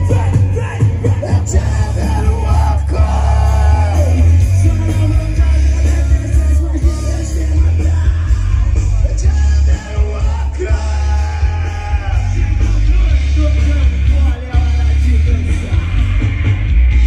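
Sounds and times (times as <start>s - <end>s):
loud rock music with singer: 0.0s - 17.0s.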